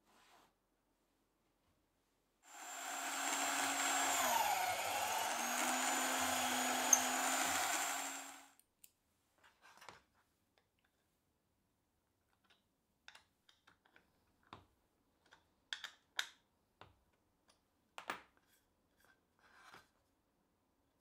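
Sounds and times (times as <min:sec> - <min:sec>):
soft rustle: 0:00.0 - 0:00.6.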